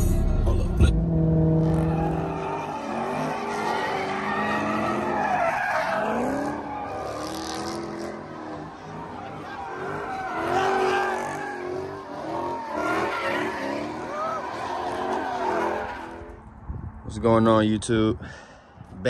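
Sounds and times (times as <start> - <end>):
car engine running hard: 0.0 - 16.5
car tyres squealing: 1.1 - 16.5.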